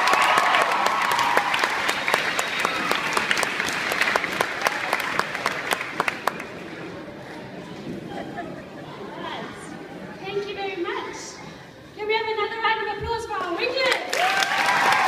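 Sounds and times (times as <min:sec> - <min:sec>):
audience applauding: 0:00.0 - 0:06.6, 0:13.9 - 0:15.0.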